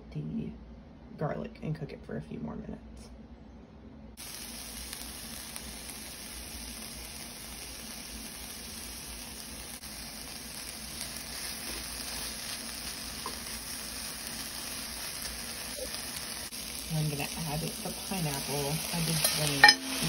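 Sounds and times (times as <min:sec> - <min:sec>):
vegetables sizzling in oil: 0:04.2 - 0:20.0.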